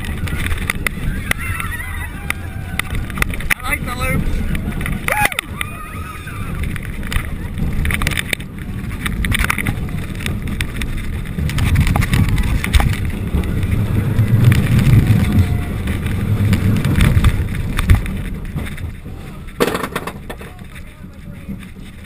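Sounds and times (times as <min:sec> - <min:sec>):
roller coaster wheels rumbling: 0:00.0 - 0:22.0
wind buffeting microphone: 0:00.0 - 0:22.0.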